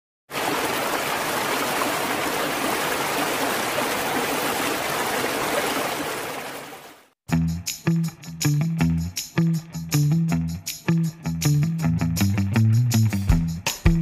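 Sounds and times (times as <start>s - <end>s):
stream splashing over rocks: 0.3s - 7.1s.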